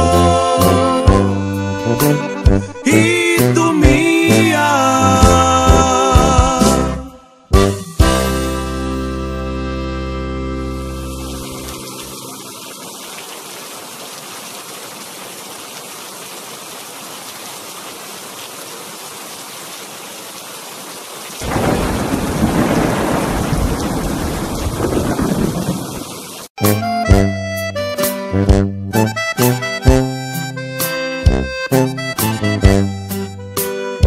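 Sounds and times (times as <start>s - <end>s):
music: 0.0s - 12.0s, 26.6s - 34.0s
steady rain falling: 10.8s - 26.5s
thunder rumbling: 21.4s - 26.3s.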